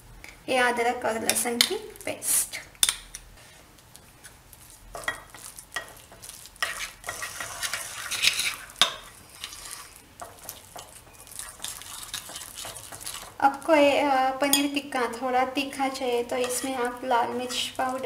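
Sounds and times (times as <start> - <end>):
spoon stirring thick paste in bowl: 4.0 - 13.7, 15.8 - 18.0.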